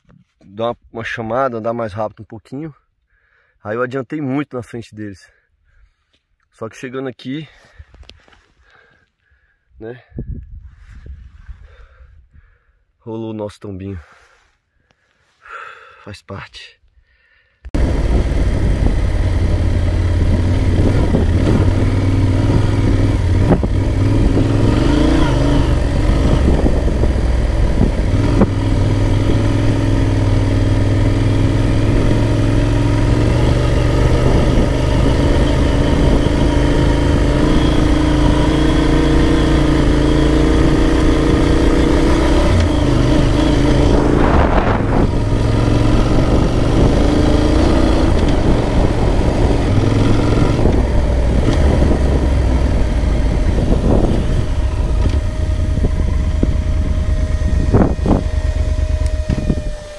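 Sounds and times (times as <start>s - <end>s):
wind noise on microphone: 10.1s - 12.5s, 17.7s - 59.9s
motorcycle engine running: 17.8s - 59.9s.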